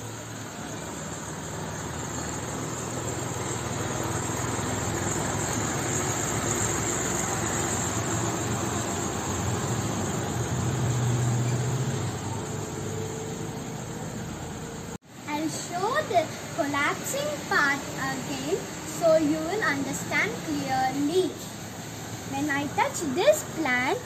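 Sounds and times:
engine-like rumble: 0.0s - 24.0s.

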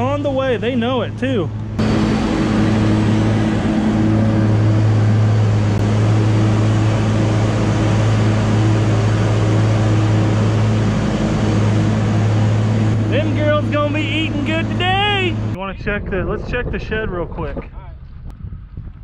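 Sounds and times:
tractor engine running: 0.0s - 19.0s
mixer and falling feed rushing: 1.7s - 15.6s.

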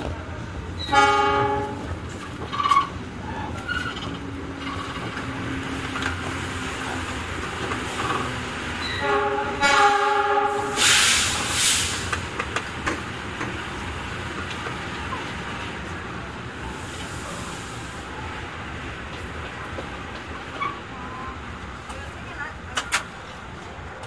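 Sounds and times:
train rolling rail noise: 0.0s - 24.0s
train horn blast: 0.8s - 1.9s, 8.8s - 11.2s
loud hissing burst: 10.6s - 12.2s.

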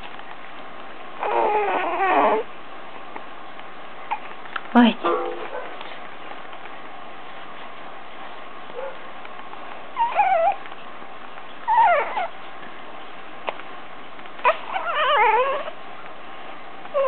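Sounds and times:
infant crying: 1.2s - 2.5s.

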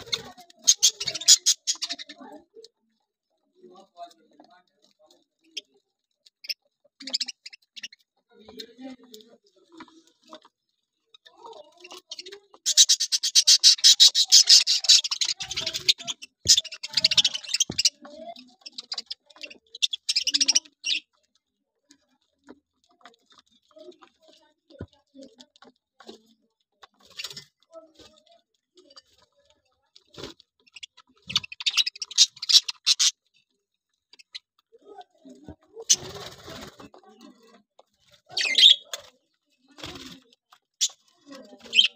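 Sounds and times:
budgerigars chattering: 0.0s - 2.2s, 11.9s - 21.1s, 30.7s - 33.2s, 38.3s - 38.9s, 41.7s - 41.9s.

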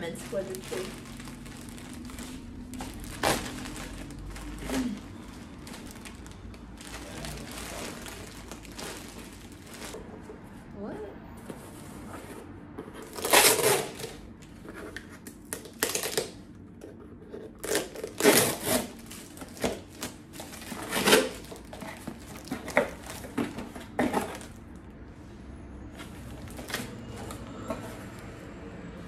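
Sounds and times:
packing tape ripping off box: 2.0s - 5.0s, 13.0s - 14.2s, 15.4s - 16.4s, 17.6s - 24.5s.

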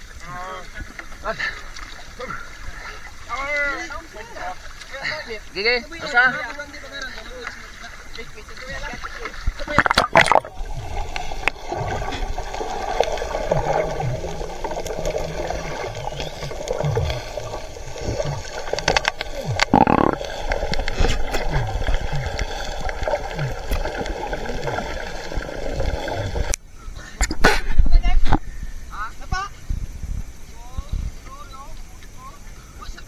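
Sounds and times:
underwater rush: 0.0s - 32.6s
muffled underwater gurgling: 7.1s - 28.6s.

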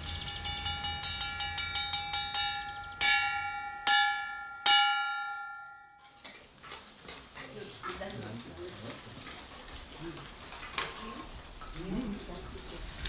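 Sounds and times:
metal bar gong ringing: 0.0s - 6.1s.

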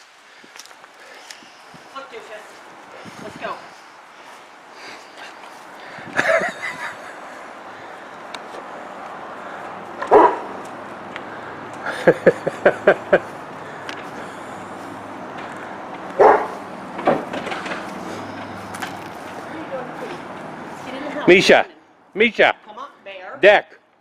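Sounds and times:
dog barking: 10.1s - 10.5s, 16.2s - 16.6s.

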